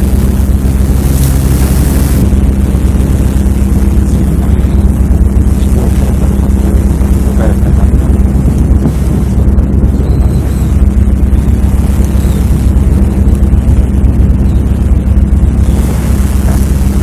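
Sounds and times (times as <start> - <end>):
boat engine drone: 0.0 - 17.0
rushing hiss: 15.6 - 17.0.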